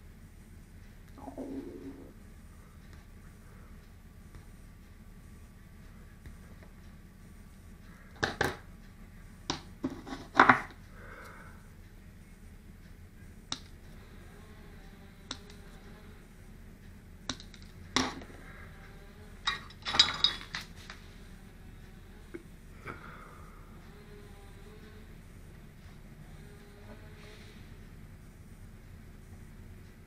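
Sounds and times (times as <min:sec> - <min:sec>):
metal tools clicking and clinking: 0:19.5 - 0:20.7.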